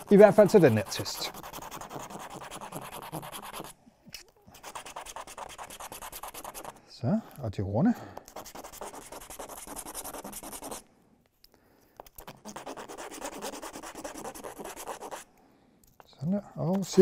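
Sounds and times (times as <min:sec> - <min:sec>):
plastic rubbing on sandpaper: 0:00.0 - 0:03.8, 0:04.5 - 0:06.8, 0:08.2 - 0:10.8, 0:12.0 - 0:15.3.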